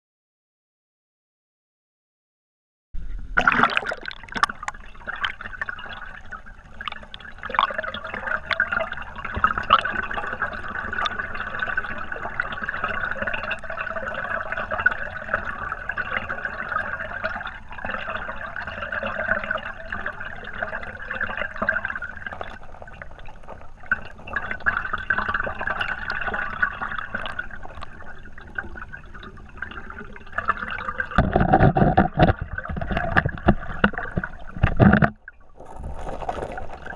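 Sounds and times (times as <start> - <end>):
underwater stream rushing: 3.4 - 36.9.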